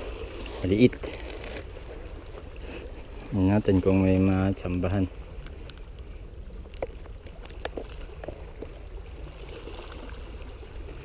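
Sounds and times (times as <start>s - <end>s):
water lapping against rocks: 0.0s - 11.0s
soft ticks: 4.1s - 7.8s, 10.0s - 11.0s.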